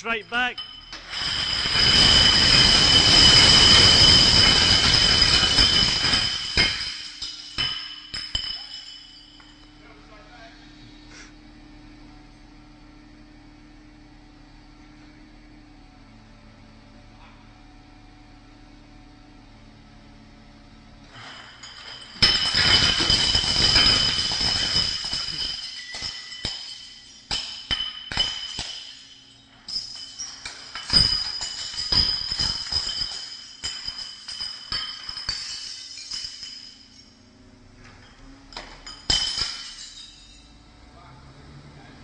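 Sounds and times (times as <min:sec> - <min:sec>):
bottles and broken glass clinking: 0:00.0 - 0:09.8, 0:21.0 - 0:40.6
glass bottles smashing: 0:00.0 - 0:09.8, 0:21.0 - 0:37.3, 0:38.0 - 0:40.6.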